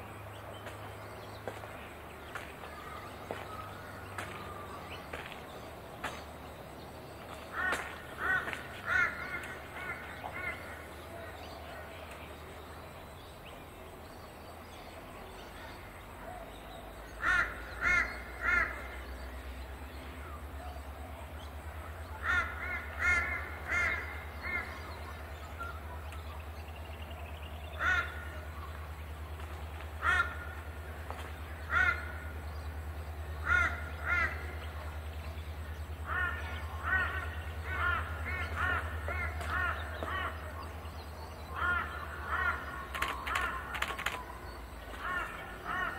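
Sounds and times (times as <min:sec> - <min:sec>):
crow cawing: 0:07.5 - 0:11.0, 0:17.2 - 0:18.9, 0:22.2 - 0:24.7, 0:27.8 - 0:28.5, 0:30.0 - 0:30.7, 0:31.6 - 0:32.3, 0:33.4 - 0:34.6, 0:36.0 - 0:40.6, 0:41.5 - 0:43.9, 0:44.9 - 0:45.9.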